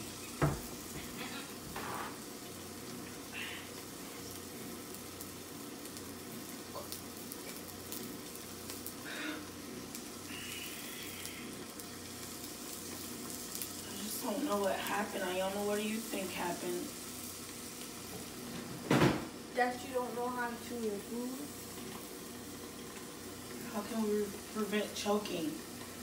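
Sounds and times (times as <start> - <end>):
room noise hiss: 0.0 - 26.0.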